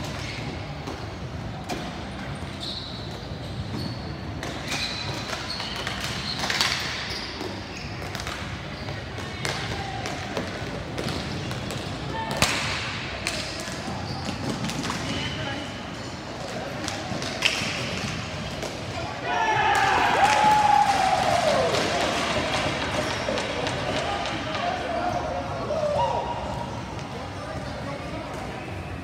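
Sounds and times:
hockey sticks and ball clacking: 0.0s - 26.1s
players' voices: 8.9s - 29.0s.

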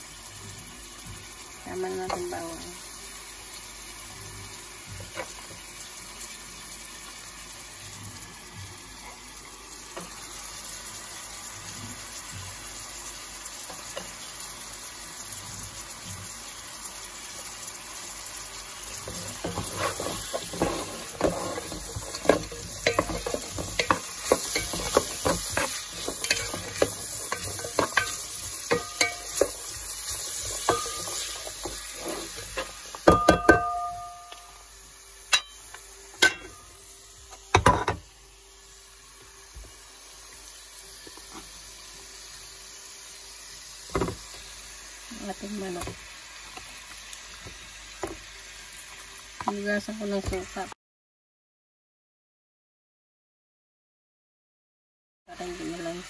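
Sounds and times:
food sizzling in hot oil: 0.0s - 50.8s, 55.3s - 56.0s
wooden spoon scraping a pot: 19.0s - 32.9s
spoon knocking on ceramic plate: 33.0s - 34.4s.

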